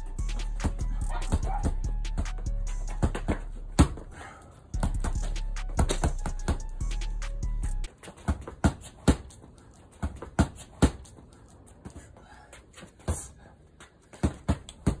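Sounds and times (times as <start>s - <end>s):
punches thudding on heavy bag: 2.9s - 4.1s, 14.2s - 15.0s.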